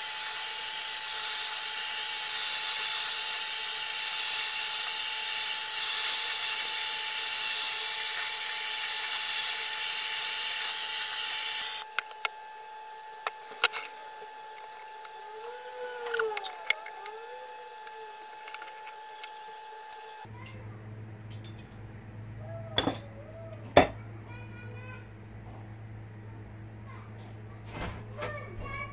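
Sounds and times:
blowtorch hissing: 0:00.0 - 0:12.3.

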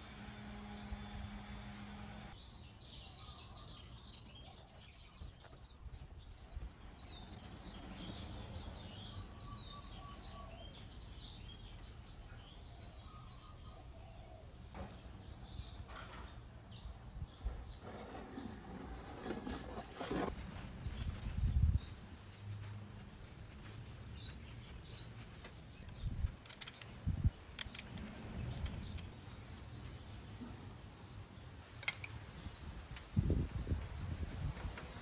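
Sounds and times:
droning hum: 0:00.0 - 0:02.4.

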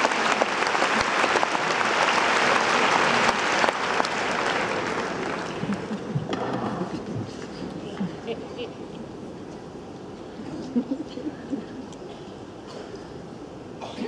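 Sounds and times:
large audience applauding: 0:00.0 - 0:06.9.

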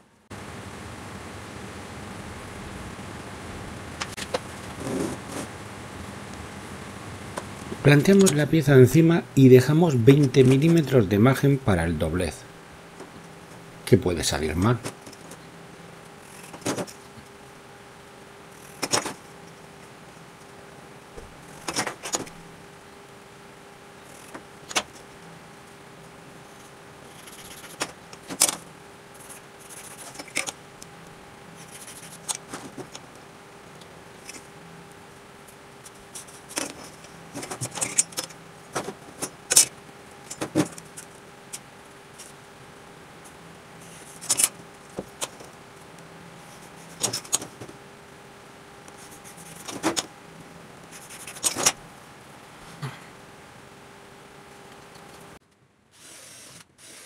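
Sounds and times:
faint steady hum: 0:00.0 - 0:57.0
pencil scratching: 0:27.1 - 0:27.8, 0:29.2 - 0:30.4, 0:31.6 - 0:32.4, 0:50.9 - 0:51.6.

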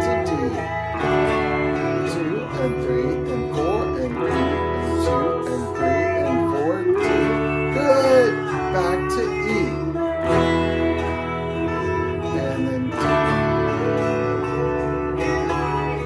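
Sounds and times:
electric guitar strumming chords: 0:00.0 - 0:16.0.

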